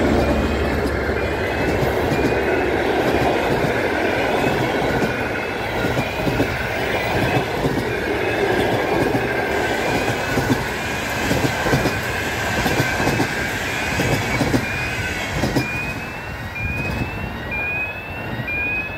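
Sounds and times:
wheels clacking over rail joints: 0:00.0 - 0:13.4
train rushing past: 0:00.0 - 0:18.9
rising whistle-like tone: 0:12.8 - 0:18.9.

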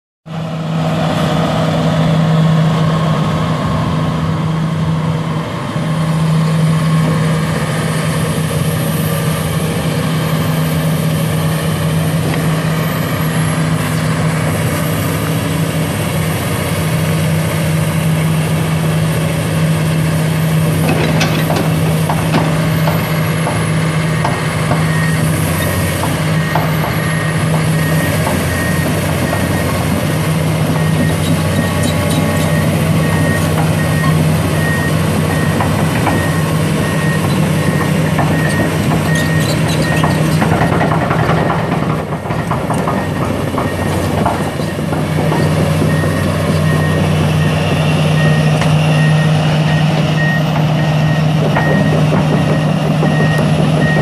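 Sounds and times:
excavator diesel engine running: 0:00.3 - 0:54.0
sharp metallic knocks: 0:37.2 - 0:47.4, 0:51.4 - 0:54.0.

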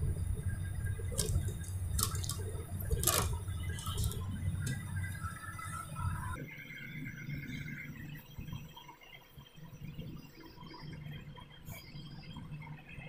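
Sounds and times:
steady low hum: 0:00.0 - 0:13.0
metal chassis clicks and knocks: 0:01.1 - 0:05.7.

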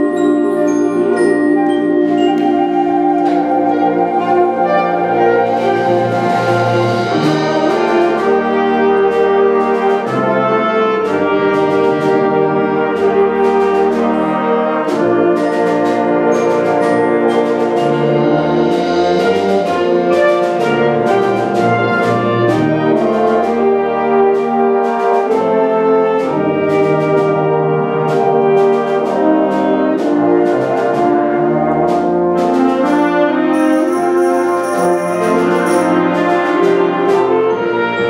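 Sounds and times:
percussion strikes: 0:00.0 - 0:12.4, 0:13.0 - 0:23.3, 0:32.1 - 0:37.6
wind band playing: 0:00.0 - 0:38.0.

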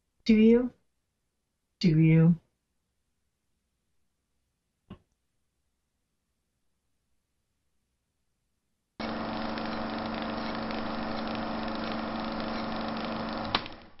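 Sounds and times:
small engine running: 0:09.0 - 0:14.0.

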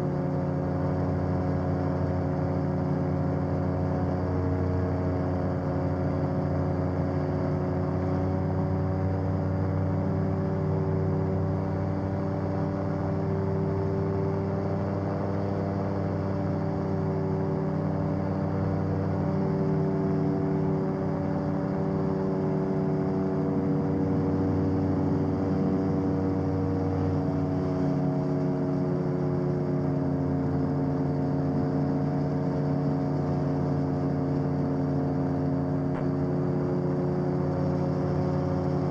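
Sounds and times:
aircraft engine from inside cabin: 0:00.0 - 0:38.9.

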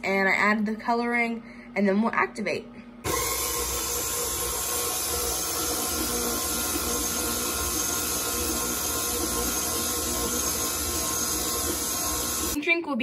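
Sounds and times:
stand mixer motor running: 0:03.1 - 0:12.6.

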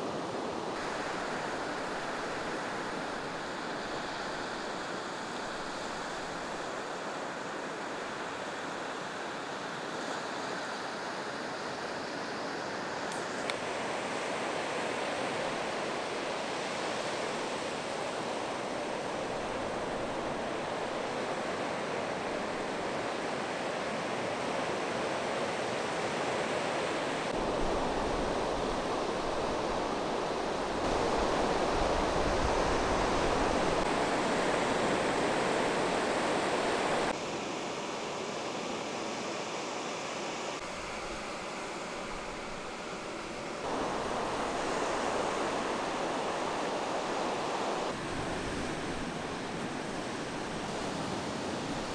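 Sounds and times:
ocean surf breaking: 0:00.0 - 0:07.5, 0:25.1 - 0:37.2, 0:40.6 - 0:51.9
wind rumble on microphone: 0:27.3 - 0:37.1.

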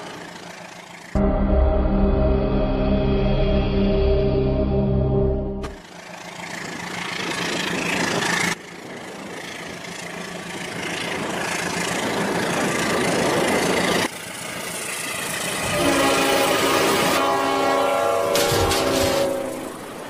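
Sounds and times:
toy train running on track: 0:00.0 - 0:01.2, 0:05.8 - 0:17.0
train horn: 0:15.6 - 0:20.0.

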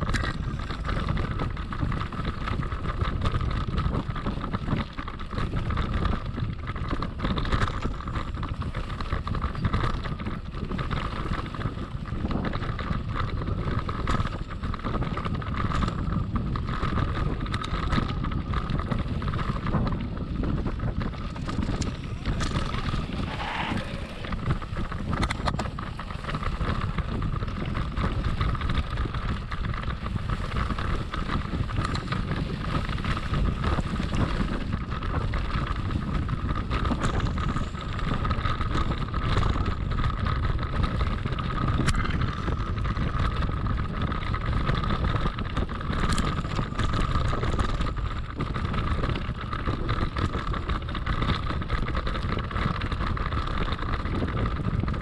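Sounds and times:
bike tyres rumbling on trail: 0:00.0 - 0:55.0
wind buffeting microphone: 0:00.0 - 0:55.0
high-pitched hum: 0:21.4 - 0:26.0.

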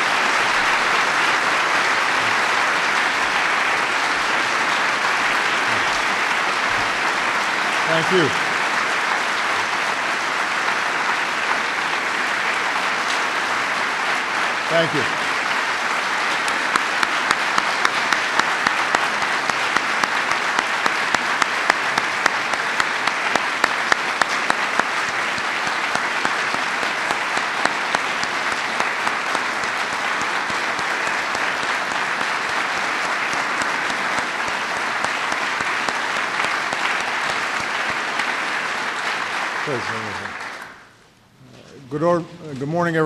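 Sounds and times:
audience applauding: 0:00.0 - 0:41.0
loud single claps: 0:14.0 - 0:41.0.

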